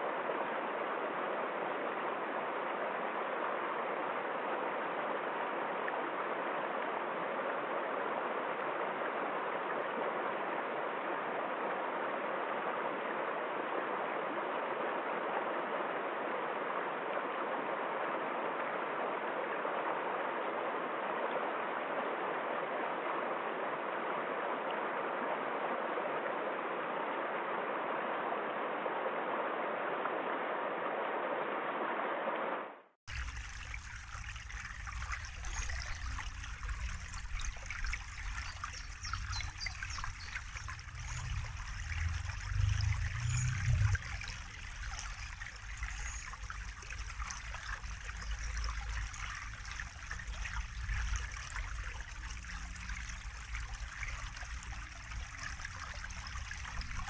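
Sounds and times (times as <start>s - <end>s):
stream flowing over stones: 33.1s - 57.0s.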